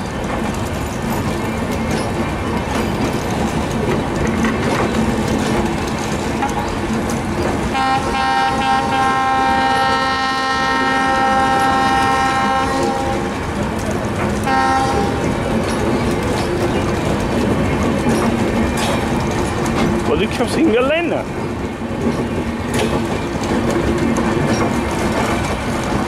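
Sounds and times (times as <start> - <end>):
clicking over rail joints: 0.0 - 26.0
train rolling on rails: 0.0 - 26.0
locomotive horn: 7.7 - 13.4, 14.4 - 15.3.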